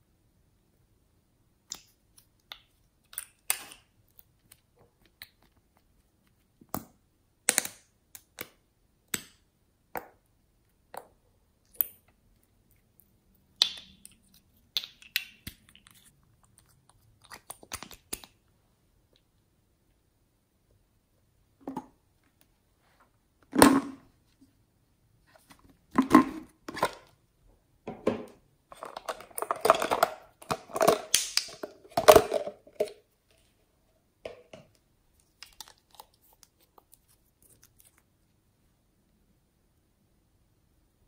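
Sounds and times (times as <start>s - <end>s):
plastic bottles clicking and rustling: 28.1s - 33.0s.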